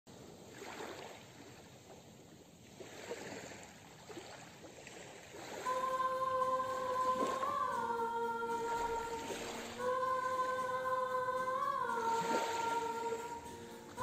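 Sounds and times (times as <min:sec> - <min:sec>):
sea water lapping: 0:00.2 - 0:14.0
held musical note: 0:05.7 - 0:14.0.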